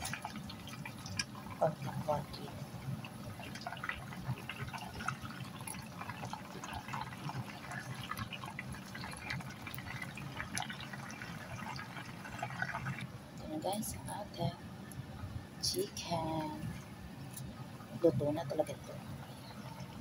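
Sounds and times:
chicken deep-frying in oil: 0.0 - 14.2.

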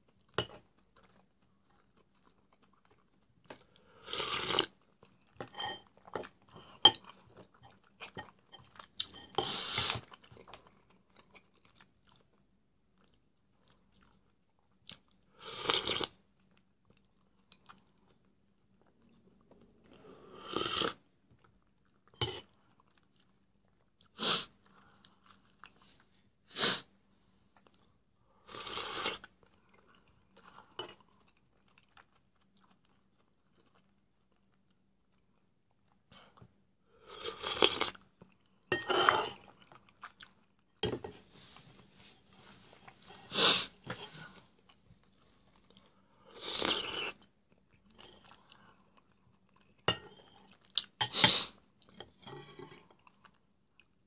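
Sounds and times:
person eating soup: 3.6 - 12.2, 14.8 - 16.2, 19.0 - 21.1, 21.9 - 23.4, 42.2 - 53.5
person chewing: 39.3 - 40.6.

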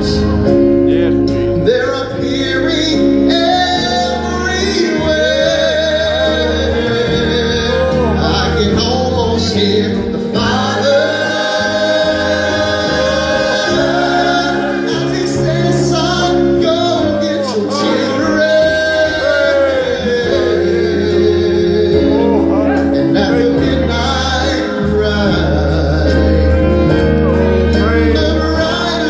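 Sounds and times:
low musical accompaniment: 0.0 - 29.0
man singing into a microphone: 0.0 - 29.0
other voices singing: 3.3 - 26.5.

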